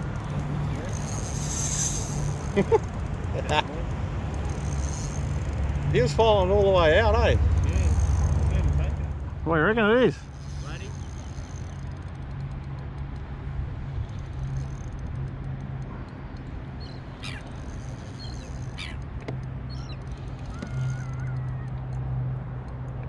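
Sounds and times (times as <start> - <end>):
steady low hum: 0.0 - 20.3
birds calling: 16.8 - 19.0, 19.7 - 21.8.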